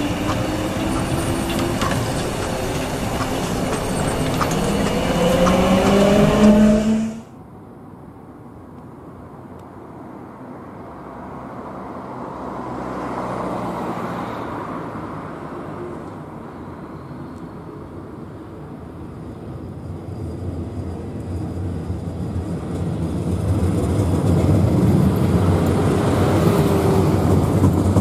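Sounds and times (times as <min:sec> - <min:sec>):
tram motors whining: 0:00.0 - 0:07.3
road traffic: 0:00.0 - 0:28.0
tram rolling rumble: 0:00.0 - 0:28.0.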